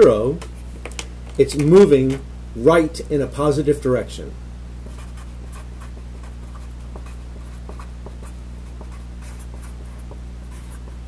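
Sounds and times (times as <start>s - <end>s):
low electrical hum: 0.0s - 11.0s
marker scratching on paper: 4.8s - 11.0s.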